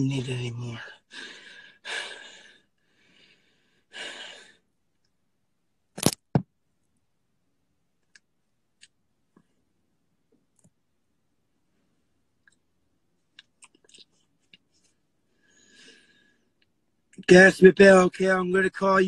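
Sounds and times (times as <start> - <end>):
man breathing out heavily: 1.0 - 4.6
sharp clicks or knocks: 6.0 - 6.5.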